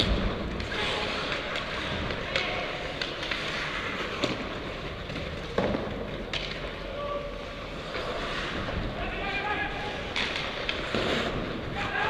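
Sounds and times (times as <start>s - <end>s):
hockey sticks and puck clacking: 0.0s - 12.0s
skates hissing on ice: 7.4s - 12.0s.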